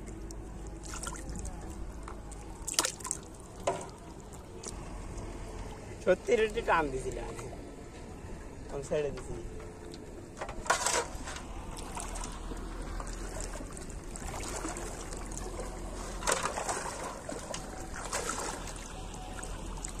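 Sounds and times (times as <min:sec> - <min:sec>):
water sloshing and splashing: 0:00.0 - 0:04.8, 0:09.2 - 0:20.0.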